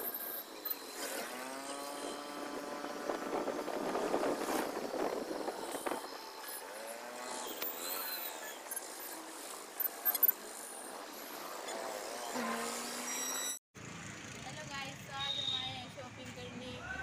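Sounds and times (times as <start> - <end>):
road traffic noise: 0.0 - 17.0
wind buffeting microphone: 1.8 - 6.5.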